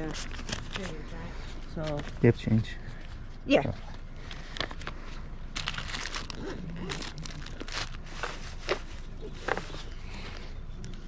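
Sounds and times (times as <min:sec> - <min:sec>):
paper banknotes crinkling: 0:04.4 - 0:10.5.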